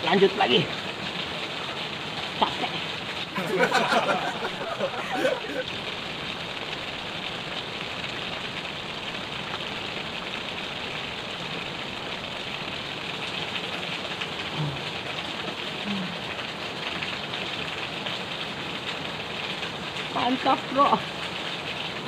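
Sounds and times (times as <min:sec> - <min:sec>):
river water rushing: 0:00.0 - 0:14.4.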